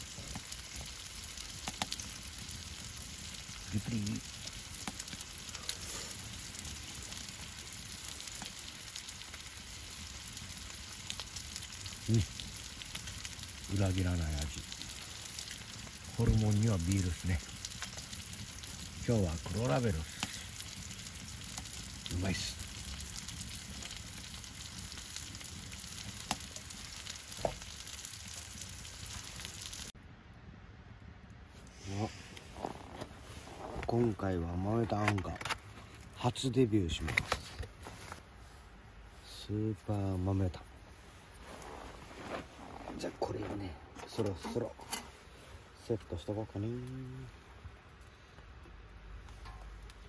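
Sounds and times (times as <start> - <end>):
meat sizzling in a skillet: 0.0 - 30.0
small pops: 0.1 - 2.1.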